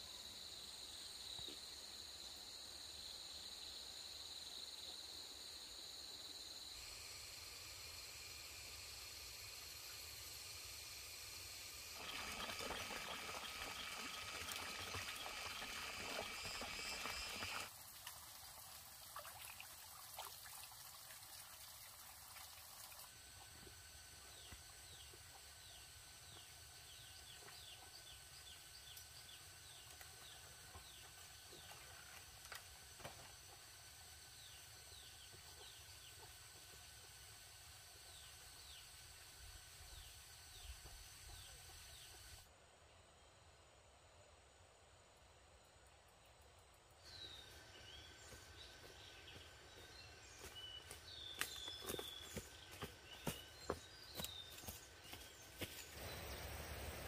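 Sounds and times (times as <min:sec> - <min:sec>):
insect drone: 0:00.0 - 0:57.0
water trickling: 0:12.0 - 0:23.1.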